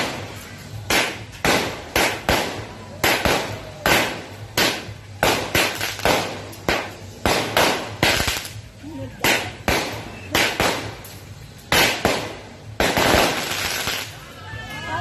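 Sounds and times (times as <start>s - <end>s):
fireworks bangs with echo: 0.0s - 14.2s.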